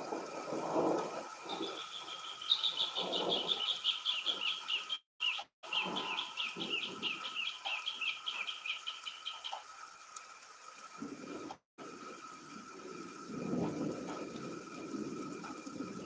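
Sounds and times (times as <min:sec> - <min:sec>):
wind buffeting microphone: 0:12.6 - 0:16.0.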